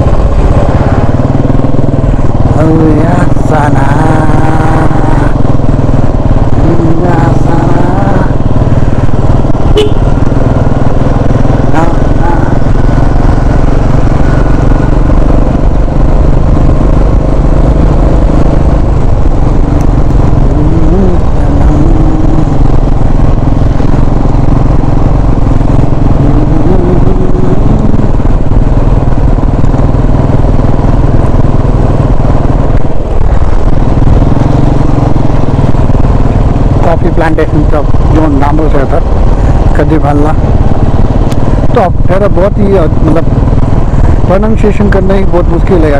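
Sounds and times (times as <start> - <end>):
motorcycle engine running: 0.0 - 45.9
road noise: 0.0 - 45.9.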